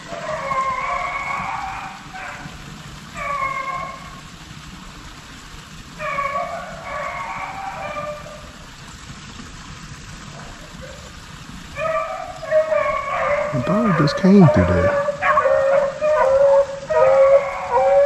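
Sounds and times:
beagles baying: 0:03.2 - 0:04.1, 0:06.0 - 0:08.4, 0:11.8 - 0:18.0.

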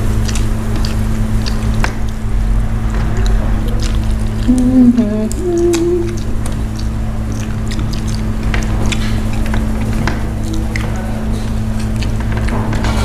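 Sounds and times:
lip smacks and wet chewing: 0:00.0 - 0:12.5
background hum: 0:00.0 - 0:13.0
person humming mouth full: 0:03.2 - 0:07.0.

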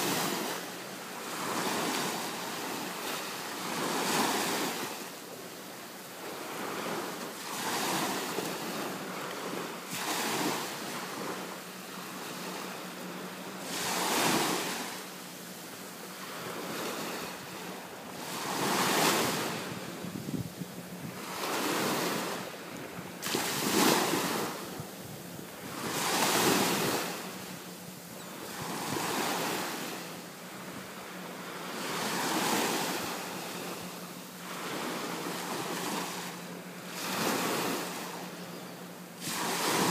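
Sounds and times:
ocean surf breaking on beach: 0:00.0 - 0:38.4, 0:39.1 - 0:39.9.

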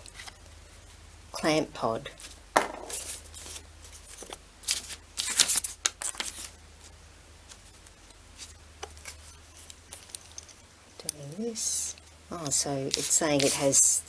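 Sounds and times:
paper rustling: 0:02.2 - 0:06.9, 0:12.5 - 0:13.9.

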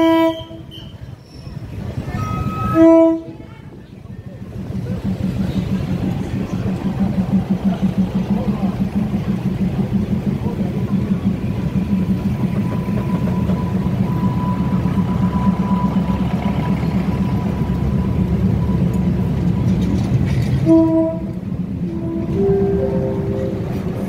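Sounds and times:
diesel railcar rumbling past: 0:00.0 - 0:24.0
melodic station chime: 0:22.3 - 0:24.0.

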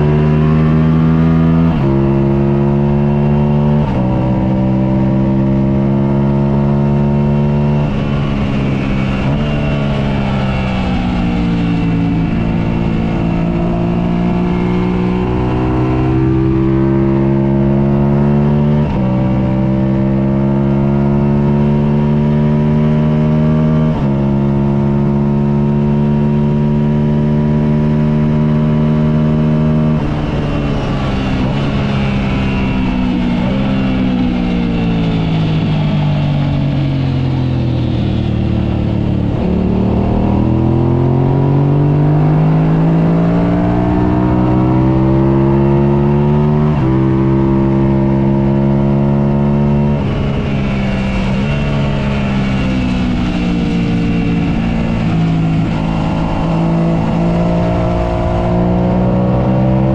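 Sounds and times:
motorcycle engine racing: 0:00.0 - 0:59.9.

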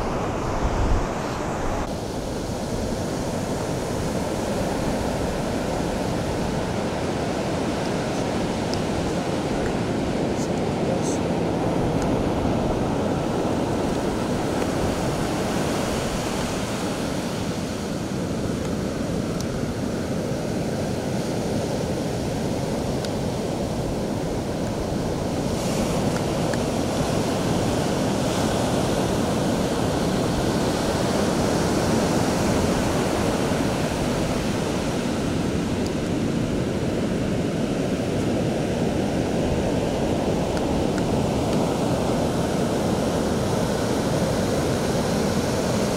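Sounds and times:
ocean surf breaking on beach: 0:00.0 - 0:45.9.

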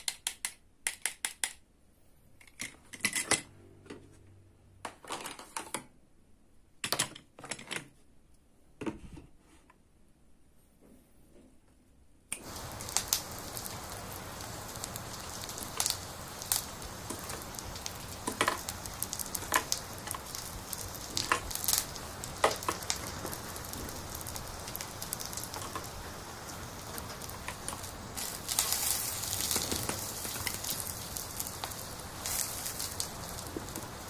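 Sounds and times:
plastic toy clicks and taps: 0:00.0 - 0:01.6
grill sizzling: 0:12.4 - 0:34.0.

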